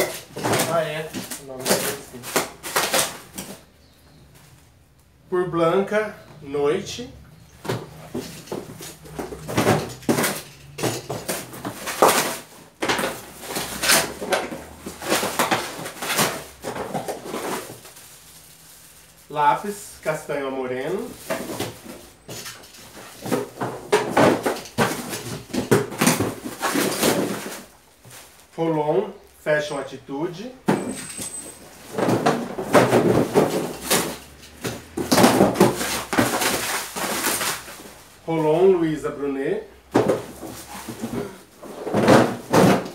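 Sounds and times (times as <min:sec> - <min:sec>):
packing tape tearing: 0:00.0 - 0:03.7, 0:08.8 - 0:19.2, 0:21.2 - 0:27.8, 0:32.0 - 0:38.0
items knocking together: 0:00.0 - 0:04.0, 0:07.5 - 0:18.5, 0:20.9 - 0:28.4, 0:30.6 - 0:38.2, 0:39.8 - 0:42.9
cardboard boxes scraping: 0:00.0 - 0:04.5, 0:07.6 - 0:19.2, 0:20.9 - 0:28.5, 0:30.7 - 0:38.7, 0:39.8 - 0:42.9
packaging rustling: 0:00.0 - 0:04.7, 0:07.6 - 0:19.3, 0:20.9 - 0:28.5, 0:30.7 - 0:38.2, 0:39.9 - 0:42.9.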